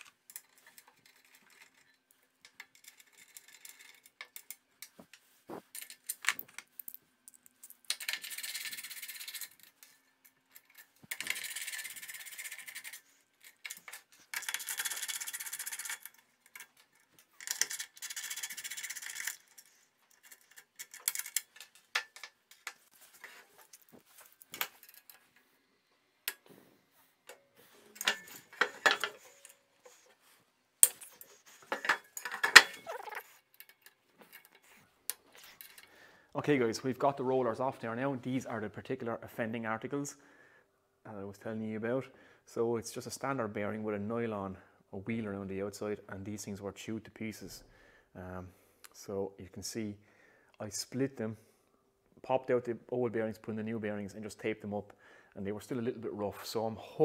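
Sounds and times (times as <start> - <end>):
metal clinks and knocks: 13.6 - 25.4, 27.3 - 30.2, 30.8 - 35.9.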